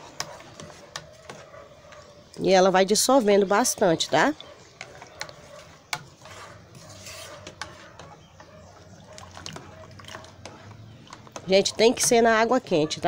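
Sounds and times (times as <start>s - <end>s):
water swishing in a mug: 4.1s - 12.4s.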